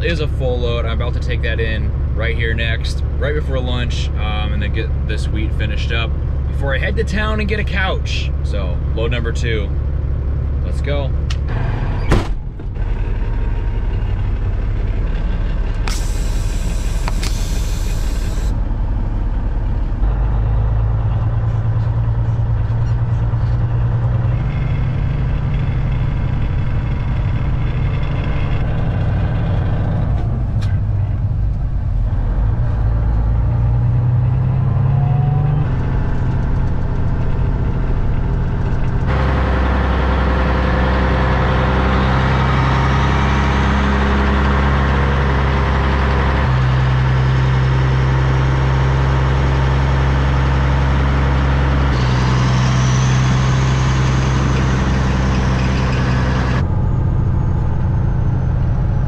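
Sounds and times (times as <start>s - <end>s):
diesel truck engine accelerating: 0.0s - 59.0s
truck running on gravel road: 0.0s - 59.0s
air brake hiss: 15.9s - 18.5s.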